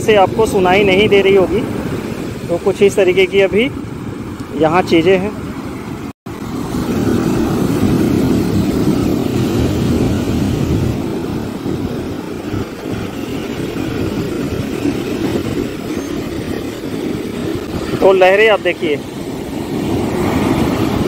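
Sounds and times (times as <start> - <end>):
wind rumbling on microphone: 0.0 - 21.0
surf breaking on sand beach: 6.3 - 21.0.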